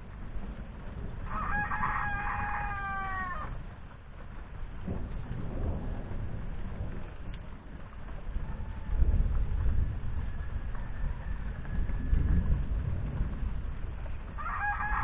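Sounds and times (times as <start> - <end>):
low rumble of thunder: 0.0 - 15.0
rooster crowing: 1.3 - 3.5, 8.4 - 9.5, 10.2 - 12.5, 14.4 - 15.0.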